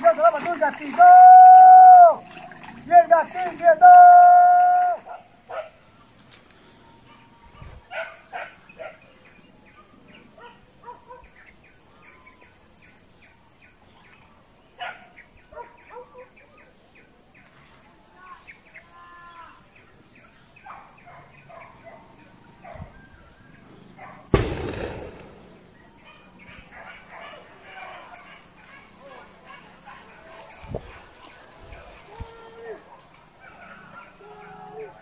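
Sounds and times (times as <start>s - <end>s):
gunshot with echo: 24.3s - 25.8s.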